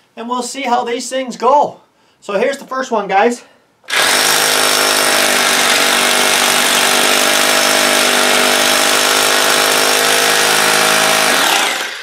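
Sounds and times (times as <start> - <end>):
hammer drill drilling into concrete: 3.9 - 12.0.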